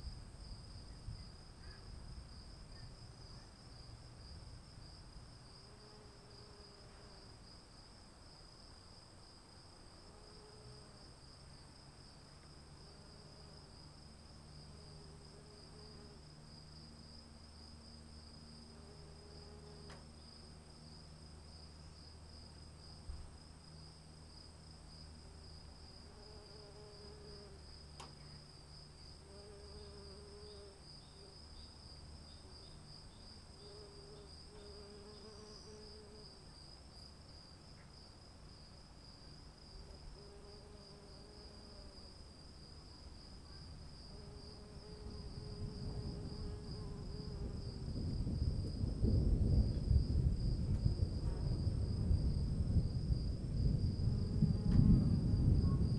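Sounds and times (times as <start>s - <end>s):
insects chirring: 0.0s - 55.9s
low rumbling noise: 47.5s - 55.9s.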